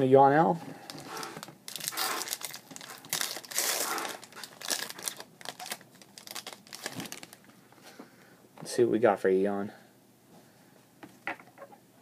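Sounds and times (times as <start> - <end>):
foil wrapper crinkling: 0.9 - 7.4.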